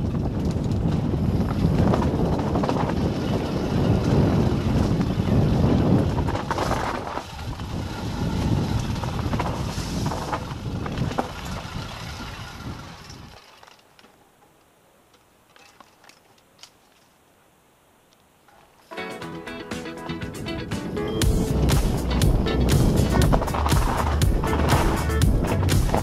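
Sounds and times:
wind buffeting microphone: 0:00.0 - 0:13.4, 0:20.2 - 0:26.0
mountain bike rattling on rocks: 0:00.0 - 0:17.2, 0:21.6 - 0:26.0.

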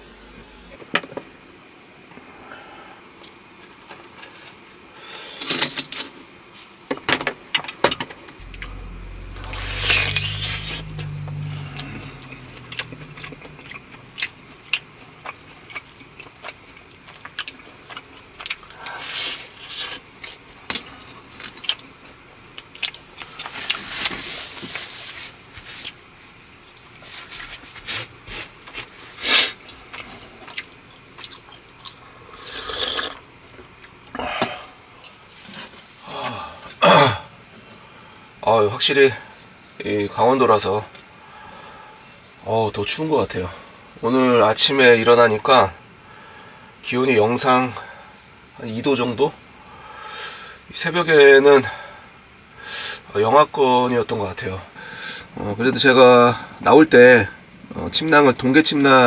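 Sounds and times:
low rumble: 0:00.0 - 0:00.8, 0:08.4 - 0:16.2.

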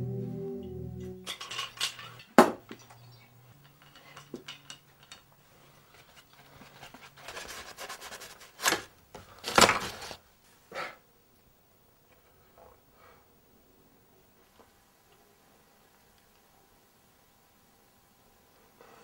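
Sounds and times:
rustling: 0:03.0 - 0:10.6.

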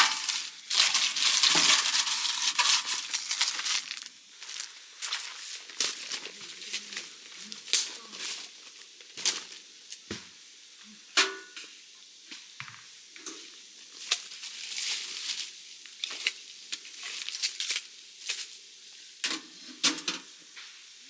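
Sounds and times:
rustling: 0:00.0 - 0:09.6, 0:13.9 - 0:18.6.

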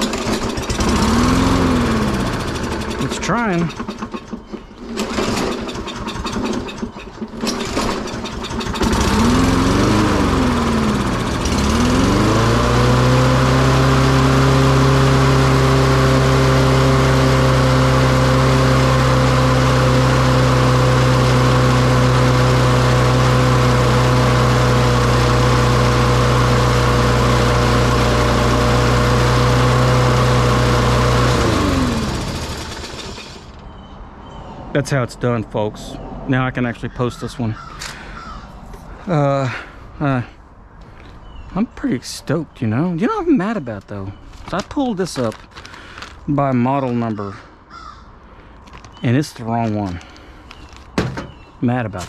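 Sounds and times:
lawn mower engine: 0:00.0 - 0:33.7, 0:37.6 - 0:40.3, 0:42.7 - 0:52.0.

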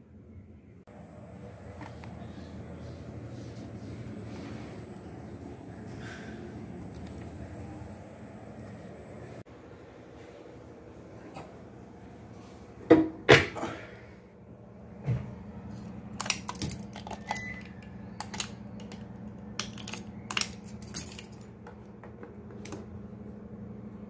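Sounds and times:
steady low hum: 0:00.0 - 0:24.0
keys jangling: 0:16.2 - 0:19.0, 0:19.6 - 0:21.6.

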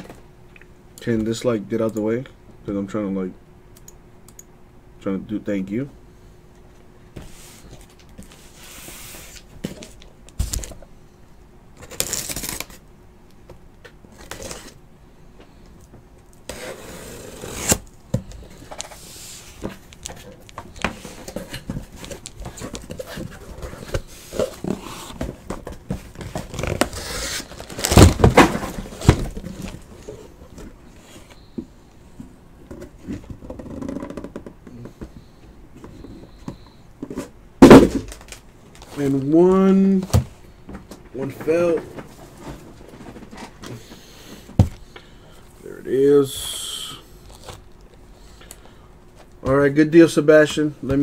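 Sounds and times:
cardboard and plastic packaging tearing: 0:11.8 - 0:12.8, 0:16.5 - 0:17.9, 0:26.2 - 0:29.8.

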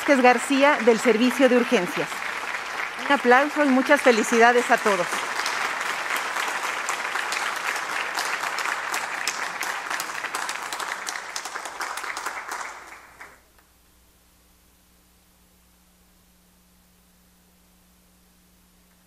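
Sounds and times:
crowd applause: 0:00.0 - 0:13.4.

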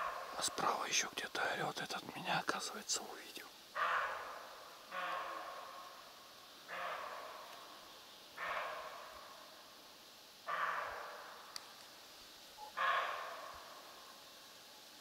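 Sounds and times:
deer barking: 0:03.8 - 0:06.0, 0:06.6 - 0:07.7, 0:08.4 - 0:09.2, 0:10.5 - 0:11.4, 0:12.7 - 0:13.9.

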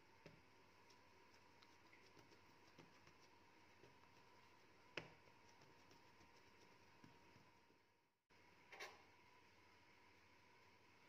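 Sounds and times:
hands patting dough on countertop: 0:00.0 - 0:07.8
faint steady hum: 0:00.0 - 0:11.0.

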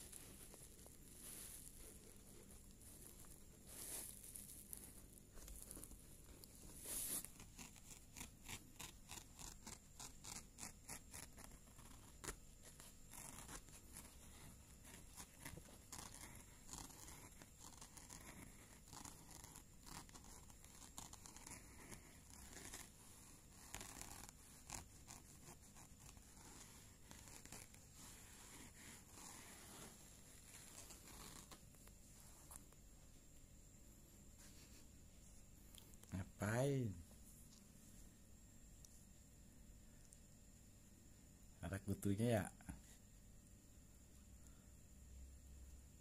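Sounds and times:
faint rustling: 0:00.0 - 0:08.3, 0:11.1 - 0:39.2
faint rapid scratching: 0:00.0 - 0:33.1.

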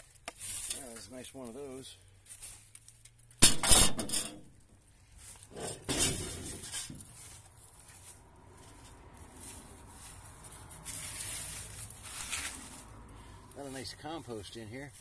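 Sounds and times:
hand scraping through pine needles: 0:00.0 - 0:03.0, 0:05.0 - 0:15.0
scrap metal clattering: 0:03.4 - 0:04.6, 0:05.4 - 0:07.3.

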